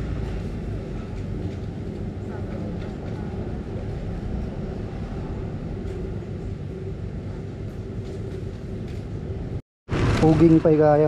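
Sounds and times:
low rumble with faint hum: 0:00.0 - 0:09.6.

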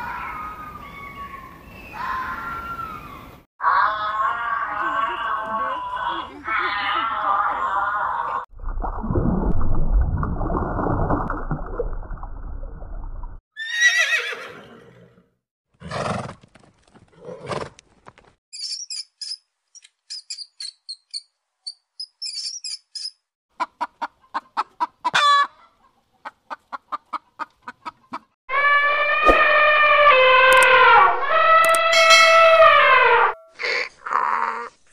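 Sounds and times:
rodent squeaking: 0:18.6 - 0:23.2
elephant trumpeting: 0:28.5 - 0:33.4.

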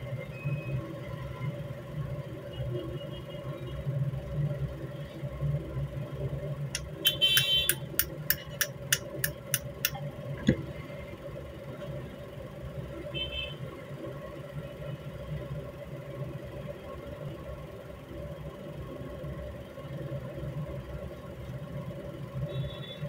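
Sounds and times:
steady low hum: 0:04.2 - 0:13.1.

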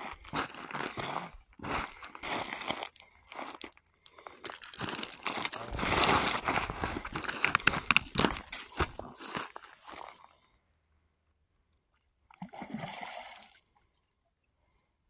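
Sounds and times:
footsteps crunching on gravel: 0:04.6 - 0:10.2.

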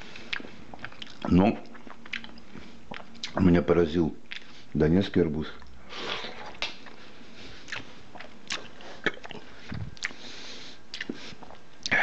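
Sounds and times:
wet chewing smacks: 0:00.2 - 0:03.4, 0:07.6 - 0:10.2, 0:10.9 - 0:12.0.

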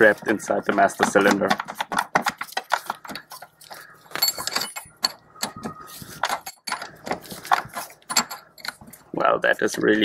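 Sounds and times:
wrench clinking on metal nut: 0:03.6 - 0:05.6, 0:06.2 - 0:06.9, 0:07.5 - 0:09.0.

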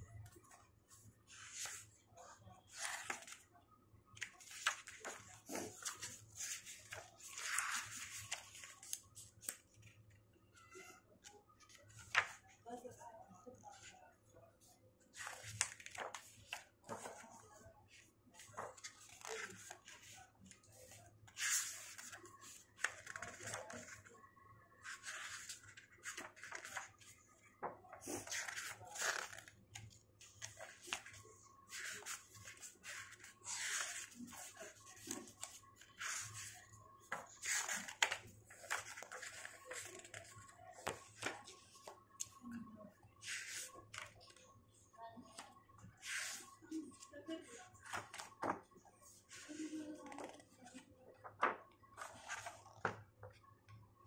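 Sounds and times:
book pages turning: 0:01.3 - 0:01.9, 0:02.7 - 0:03.4, 0:04.2 - 0:09.8, 0:11.6 - 0:12.4, 0:15.1 - 0:24.1, 0:24.8 - 0:42.4, 0:43.2 - 0:44.4, 0:46.0 - 0:46.6, 0:47.8 - 0:53.4.

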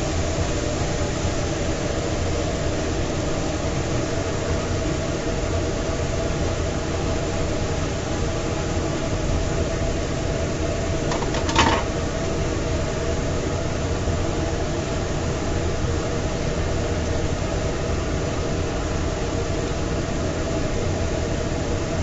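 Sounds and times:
fan whirring: 0:00.0 - 0:22.0
short clatter: 0:11.1 - 0:12.0.

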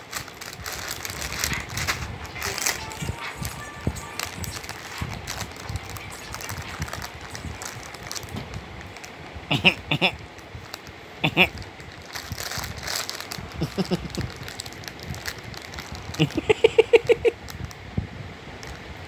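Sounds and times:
plastic packet crinkling: 0:00.0 - 0:09.2, 0:10.2 - 0:17.7
baby giggling: 0:09.5 - 0:10.2, 0:11.2 - 0:11.6, 0:13.6 - 0:14.3, 0:16.2 - 0:17.3.

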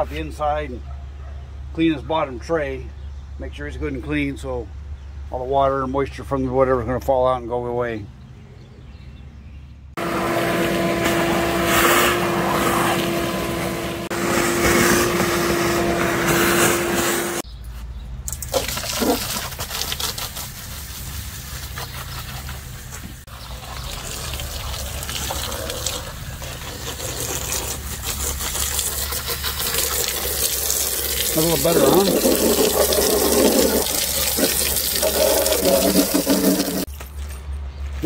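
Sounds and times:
hose water spraying and splashing: 0:10.0 - 0:17.4, 0:18.3 - 0:36.9
shop vacuum whining: 0:10.0 - 0:17.4.

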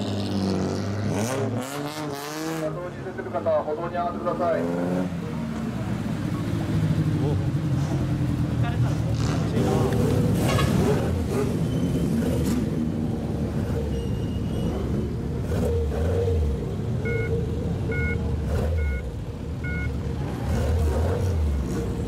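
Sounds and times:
car engines rumbling past: 0:00.0 - 0:22.0
short two-tone beeps: 0:17.0 - 0:17.3, 0:17.9 - 0:18.2, 0:18.8 - 0:19.9.

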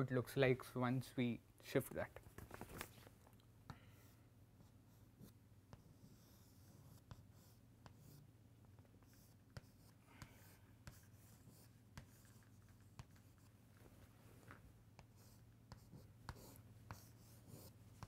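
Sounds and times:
chalk scratching on chalkboard: 0:04.0 - 0:08.3, 0:09.0 - 0:13.6, 0:14.9 - 0:18.0
chalk tapping on chalkboard: 0:09.0 - 0:13.5, 0:14.9 - 0:18.0.

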